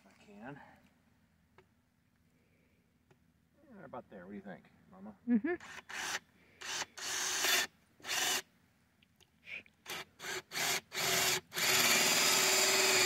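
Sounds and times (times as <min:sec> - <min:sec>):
cordless drill boring into wood: 0:05.6 - 0:08.4, 0:09.9 - 0:13.0.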